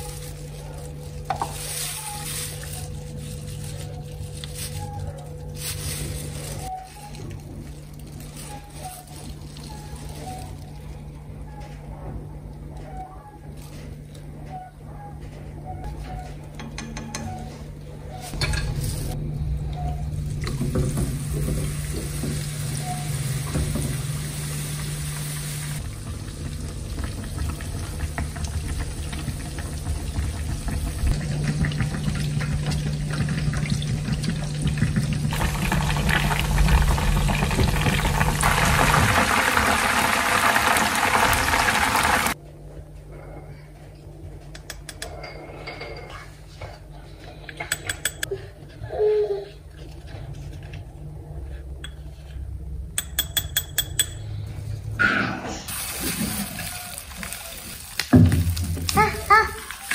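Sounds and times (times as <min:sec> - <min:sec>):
water running from tap: 0:20.4 - 0:42.4.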